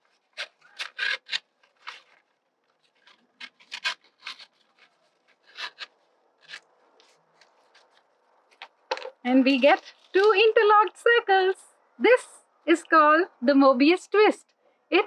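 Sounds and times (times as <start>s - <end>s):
paper rustling: 0.0s - 10.5s
scissors snipping paper: 0.2s - 2.2s, 2.8s - 8.6s.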